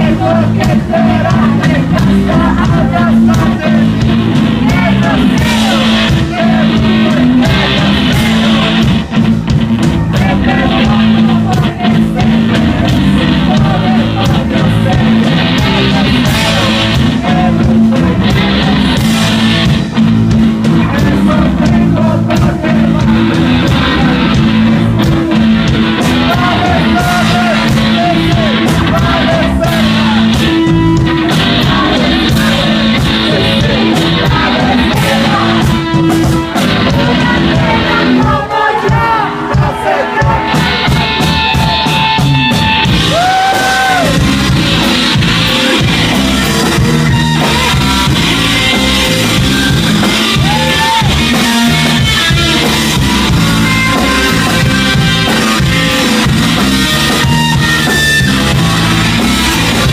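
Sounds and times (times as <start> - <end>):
electric guitar: 0.0 - 59.9
rock band playing: 0.0 - 59.9
woman singing: 31.3 - 35.9, 36.8 - 40.6.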